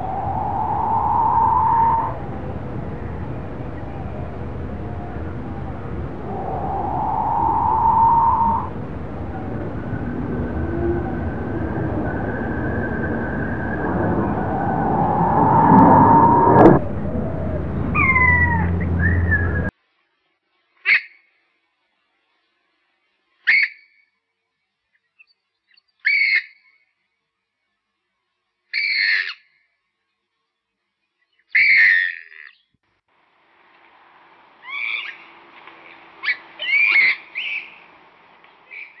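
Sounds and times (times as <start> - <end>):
quail whistling call: 6.6 - 14.4, 17.9 - 19.7, 23.5 - 23.9, 36.2 - 37.8
faint steady hiss: 33.0 - 39.0.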